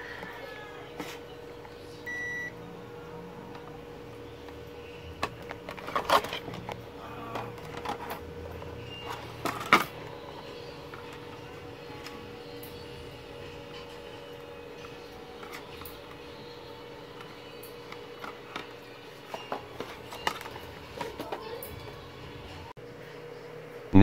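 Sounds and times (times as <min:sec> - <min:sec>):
faint steady hum: 0:00.0 - 0:24.0
multimeter beep: 0:02.0 - 0:02.6.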